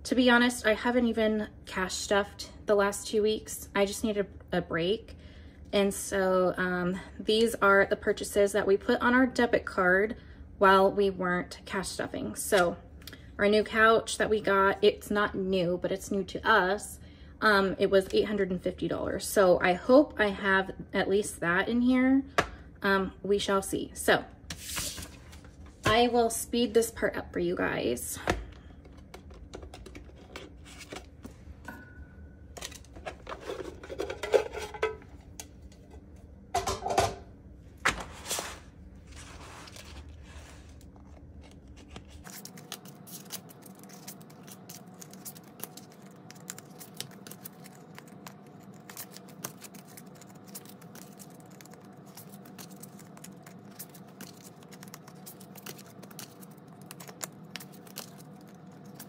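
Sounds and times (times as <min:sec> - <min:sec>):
paper bills and plastic rustling: 0:24.5 - 0:25.8, 0:38.0 - 0:59.0.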